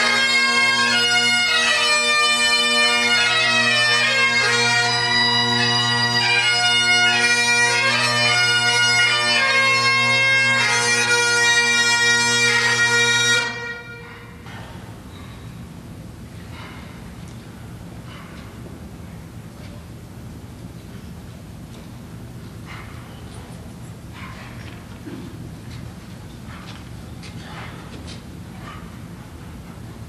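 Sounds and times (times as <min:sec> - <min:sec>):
bagpipes playing a tune: 0:00.0 - 0:14.4.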